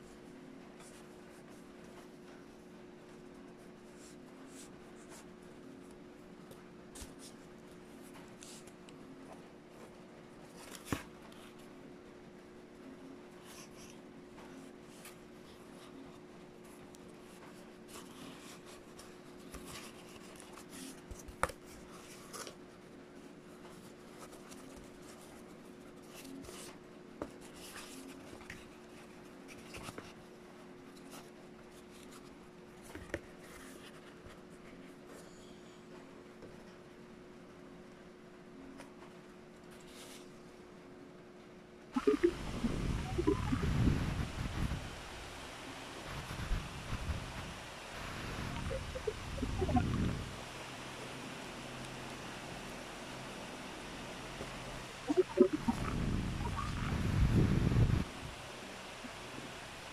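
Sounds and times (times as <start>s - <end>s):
steady low hum: 42.0s - 44.9s, 46.1s - 50.5s, 54.9s - 58.4s.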